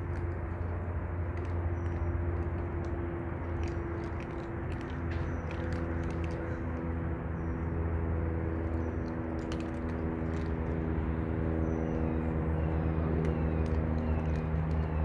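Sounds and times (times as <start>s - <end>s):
faint scattered clicks: 0.0s - 7.6s, 8.5s - 11.0s, 13.0s - 15.0s
low mechanical hum: 0.0s - 15.0s.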